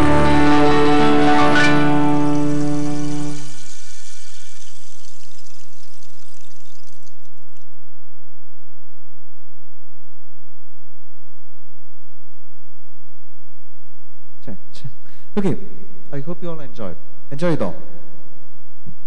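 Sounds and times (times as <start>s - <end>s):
violin: 0.0s - 4.1s.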